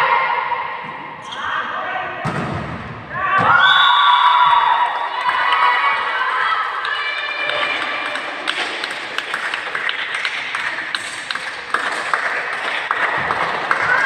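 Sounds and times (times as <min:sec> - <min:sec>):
murmur of spectators: 0:00.0 - 0:03.6, 0:04.5 - 0:14.0
sharp taps and claps: 0:06.8 - 0:14.0.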